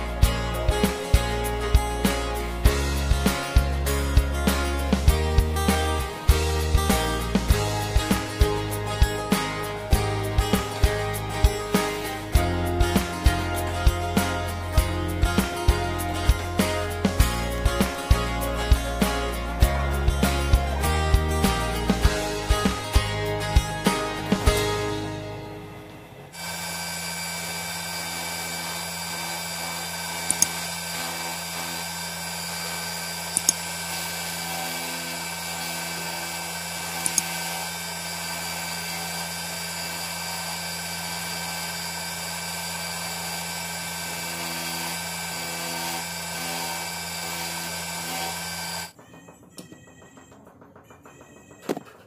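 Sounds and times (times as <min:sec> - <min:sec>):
electric sanding motor whine: 0:26.4 - 0:49.0.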